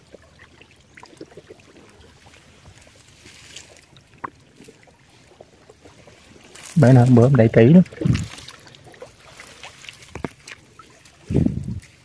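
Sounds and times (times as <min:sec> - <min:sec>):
water sloshing: 0:00.0 - 0:12.0
dry reeds crackling: 0:05.1 - 0:12.0.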